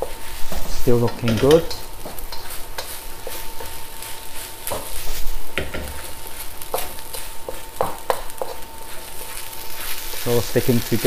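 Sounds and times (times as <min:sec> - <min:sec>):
rice sizzling in a wok: 0:00.0 - 0:11.0
spatula scraping a wok: 0:00.0 - 0:11.0
spatula knocking against pan: 0:06.7 - 0:08.6.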